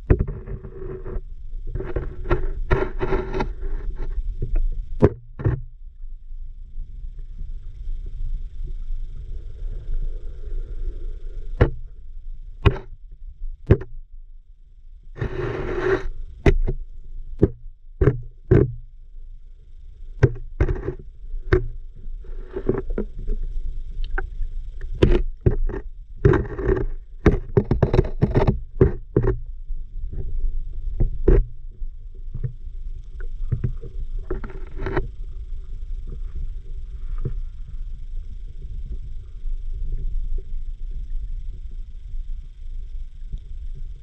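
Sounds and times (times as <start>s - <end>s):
sharp underwater clicks and knocks: 0.0s - 5.7s, 11.6s - 11.8s, 12.6s - 13.0s, 13.6s - 14.0s, 15.2s - 16.8s, 17.4s - 18.8s, 20.2s - 29.5s, 31.0s - 31.6s, 33.2s - 35.1s
low underwater rumble of water: 0.0s - 44.0s.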